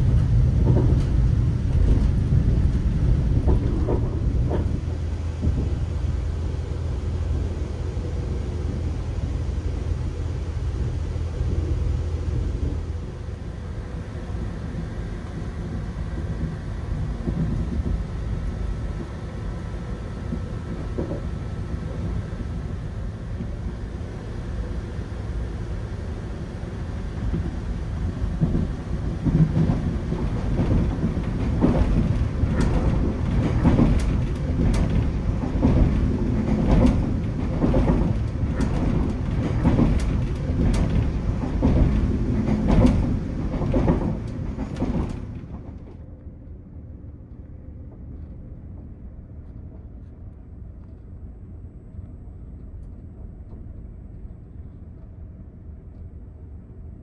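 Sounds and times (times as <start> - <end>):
train wheels rumbling on rail: 0.0 - 57.0
sharp irregular clicks and knocks: 28.3 - 46.6.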